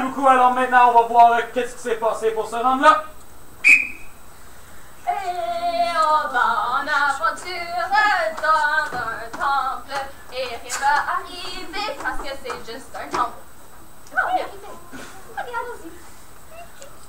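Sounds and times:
high whistle tone: 3.6 - 4.2
young person singing: 5.0 - 13.4.

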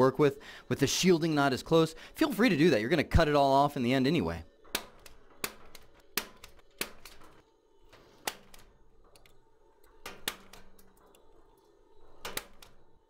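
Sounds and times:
punch-down tool clicks: 4.7 - 7.4, 8.2 - 11.2.

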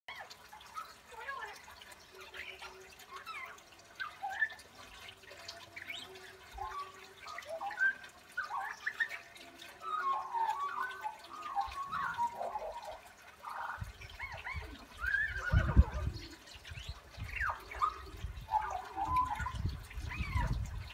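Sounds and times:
magpie warbling: 5.8 - 20.7.

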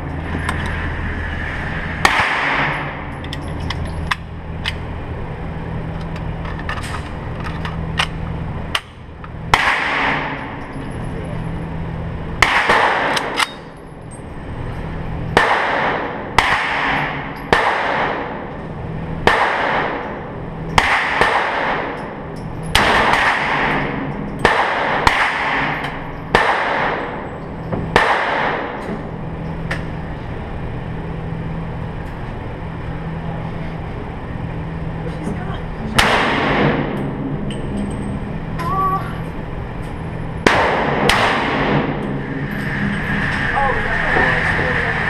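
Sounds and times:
steady low hum: 0.0 - 45.0
rifle shots echoing: 2.0 - 3.0, 9.5 - 10.4, 12.4 - 13.4, 15.4 - 18.5, 19.2 - 20.2, 20.8 - 22.0, 22.8 - 27.2, 27.9 - 28.8, 35.9 - 37.0, 40.4 - 42.0.

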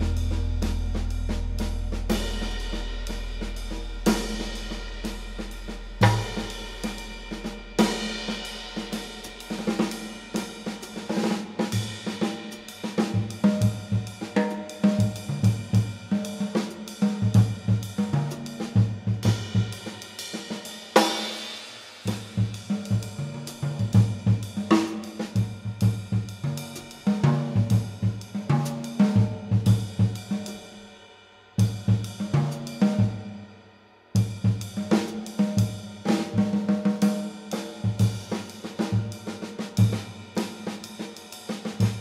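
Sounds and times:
cymbal crash: 0.0 - 10.6
drum kit cymbals and snare: 0.0 - 42.0.

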